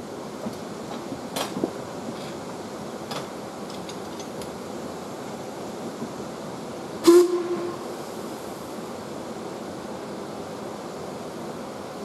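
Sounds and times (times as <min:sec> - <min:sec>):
steady background hiss: 0:00.0 - 0:12.0
steam locomotive whistle toot: 0:07.0 - 0:08.0.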